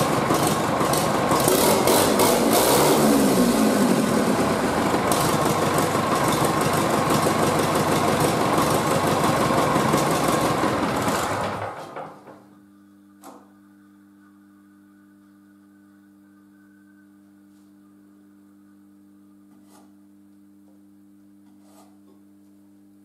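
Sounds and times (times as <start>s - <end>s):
tractor engine running: 0.0s - 12.3s
faint steady hum: 12.4s - 23.0s.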